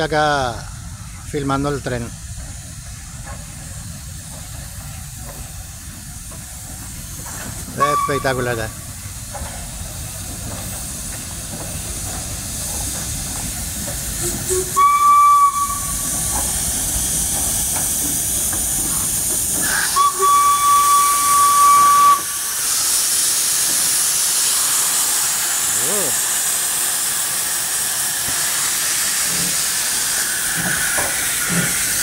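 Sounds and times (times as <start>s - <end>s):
steam locomotive moving: 0.0s - 32.0s
hiss of escaping steam: 0.1s - 32.0s
steam whistle blasts: 7.8s - 8.6s, 14.4s - 16.0s, 19.8s - 22.4s.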